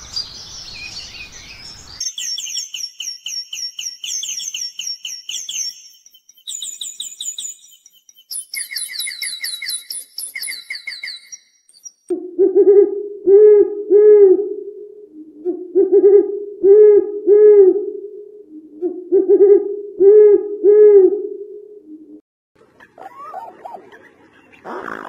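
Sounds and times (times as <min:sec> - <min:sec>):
high rapid bird chirping: 0:00.2 - 0:12.1
low hooting call: 0:12.1 - 0:24.8.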